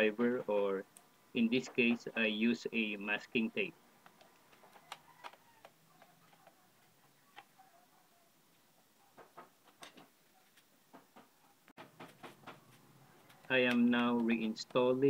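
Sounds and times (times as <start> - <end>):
screwdriver clicking on plastic casing: 4.0 - 7.5.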